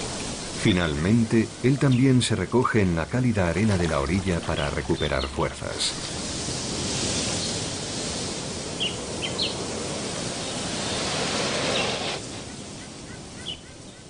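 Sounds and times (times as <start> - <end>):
outdoor rushing ambience: 2.7 - 9.2
bird chirps: 3.8 - 6.1, 12.5 - 14.0.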